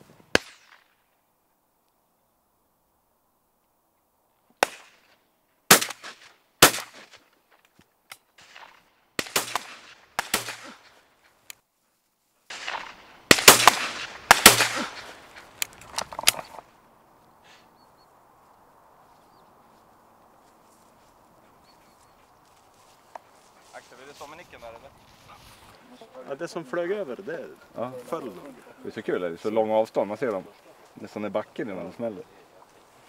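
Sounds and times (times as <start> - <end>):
shotgun shots: 0.3 - 0.9, 4.6 - 5.1, 5.7 - 7.2, 8.4 - 11.0, 12.5 - 15.3.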